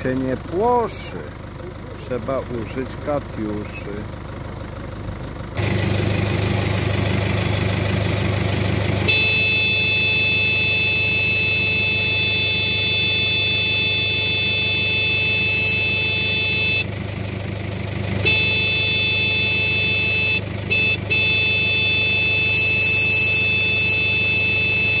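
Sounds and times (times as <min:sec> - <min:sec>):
engine running: 0:00.0 - 0:25.0
vehicle horn blasts: 0:08.2 - 0:17.1, 0:18.1 - 0:25.0.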